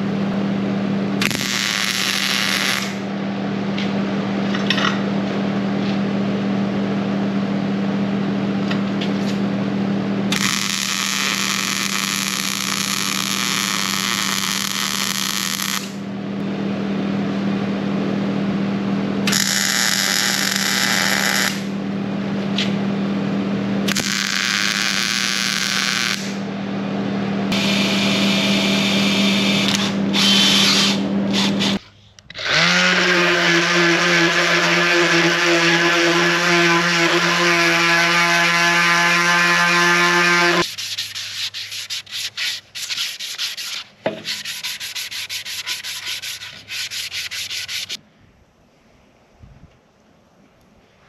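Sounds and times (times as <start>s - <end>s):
steady hum: 0.0s - 51.0s
welder arc: 1.2s - 3.1s, 10.3s - 16.0s, 19.2s - 21.8s, 23.9s - 26.4s
orbital sander on wood: 32.5s - 43.7s, 44.4s - 48.0s
short rubbing strokes: 40.6s - 48.0s.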